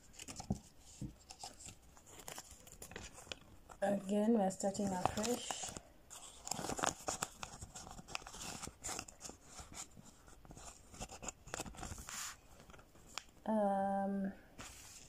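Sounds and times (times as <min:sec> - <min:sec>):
plastic and paper crinkling: 0:00.0 - 0:13.5, 0:14.6 - 0:15.0.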